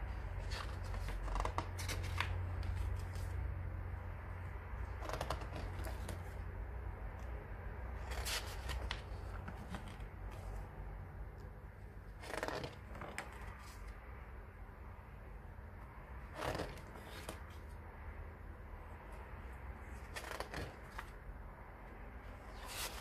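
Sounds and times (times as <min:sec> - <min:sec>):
page turning swishes: 0:00.4 - 0:03.4, 0:08.0 - 0:10.6, 0:19.9 - 0:21.1, 0:22.5 - 0:23.0.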